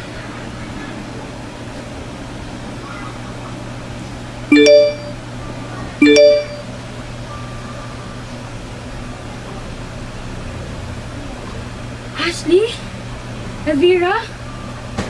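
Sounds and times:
smartphone notification chimes: 0:04.5 - 0:05.2, 0:06.0 - 0:06.7.

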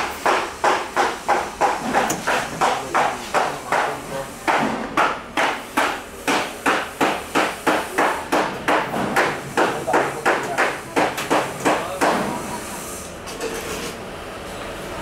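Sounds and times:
rapid sharp knocking: 0:00.2 - 0:12.3.

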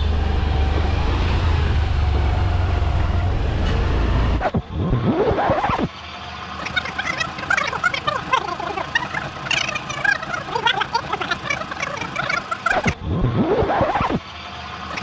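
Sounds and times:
many birds chirping and squawking: 0:06.6 - 0:13.0.

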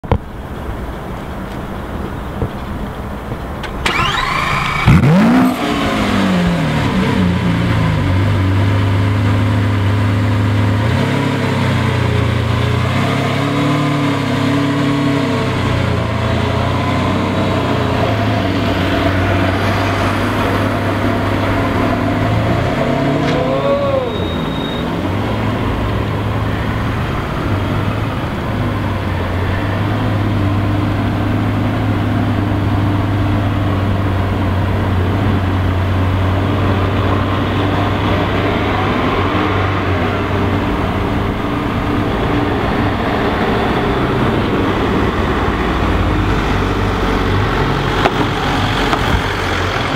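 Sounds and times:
car engine idling: 0:00.0 - 0:10.8, 0:23.3 - 0:49.9
engine revving: 0:03.8 - 0:49.9.

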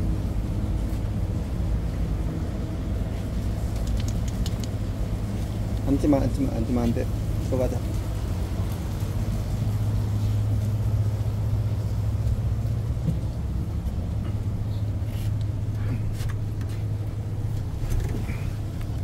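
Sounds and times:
ship engines humming: 0:00.0 - 0:19.0
faint clicks: 0:03.6 - 0:04.8.

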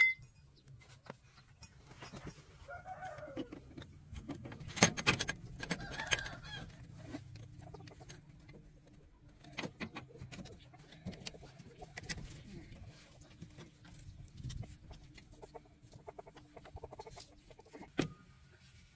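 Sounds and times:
rooster crowing: 0:02.7 - 0:03.5.

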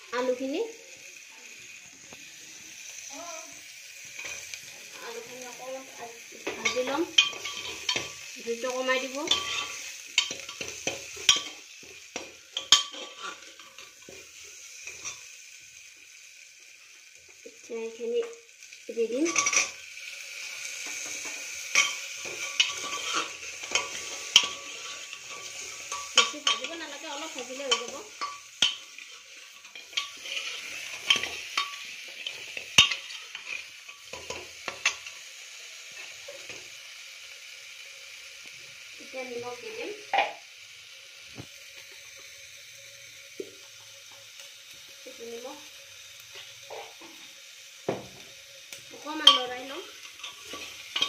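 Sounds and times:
food sizzling: 0:00.0 - 0:51.0
metal spoon scraping in cooker: 0:06.6 - 0:08.2, 0:09.0 - 0:11.6, 0:12.2 - 0:14.1, 0:19.2 - 0:19.8, 0:20.8 - 0:35.1.

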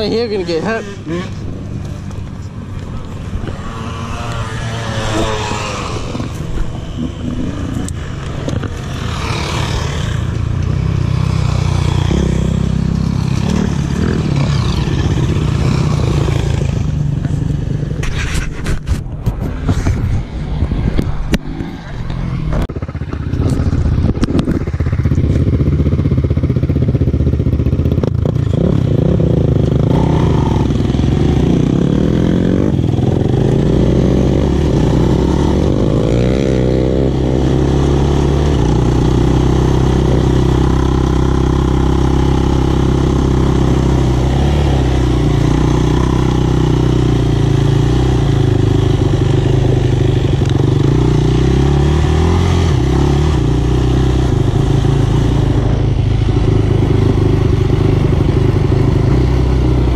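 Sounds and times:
quad engine revving: 0:23.4 - 0:59.9.

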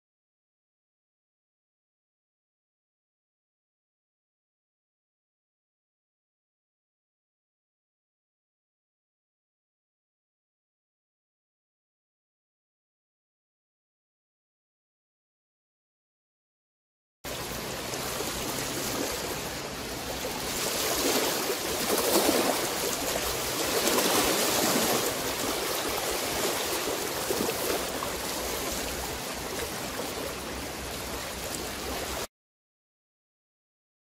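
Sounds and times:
small waves washing onto pebbles: 0:17.3 - 0:32.3.

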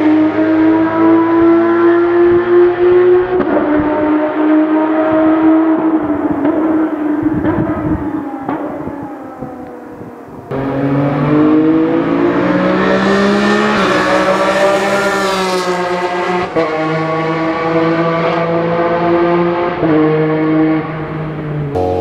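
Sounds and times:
racing car engine accelerating: 0:00.0 - 0:07.5, 0:10.5 - 0:22.0.

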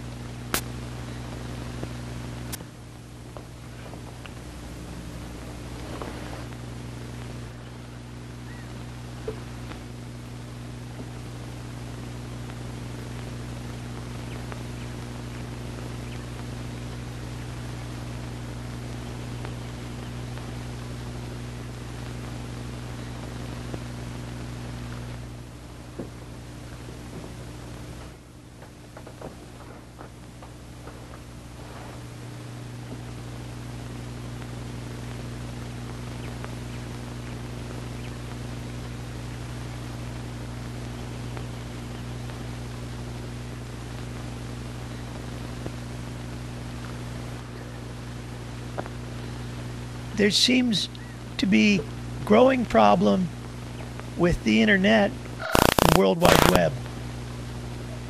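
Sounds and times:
constant hiss: 0:00.0 - 0:58.0
low electrical hum: 0:00.0 - 0:58.0
small click: 0:00.5 - 0:00.7.

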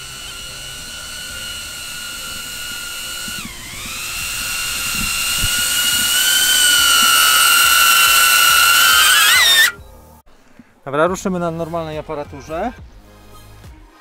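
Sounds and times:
drone propellers whining: 0:00.0 - 0:09.8.

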